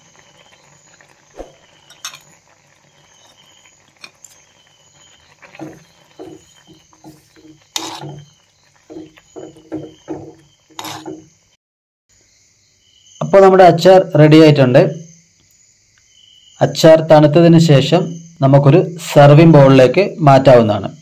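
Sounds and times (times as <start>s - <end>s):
spoon scraping clay pot: 4.0s - 11.4s.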